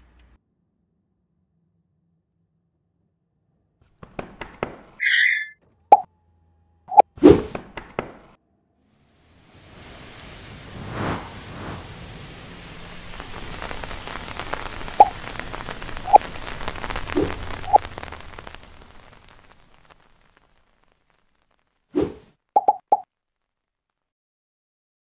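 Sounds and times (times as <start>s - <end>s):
rain hissing: 8.9s - 23.0s.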